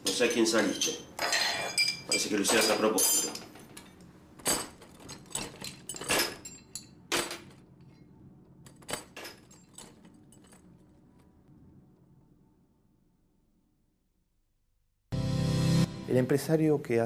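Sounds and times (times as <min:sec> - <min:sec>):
metal hand tools clinking: 0:00.0 - 0:07.4.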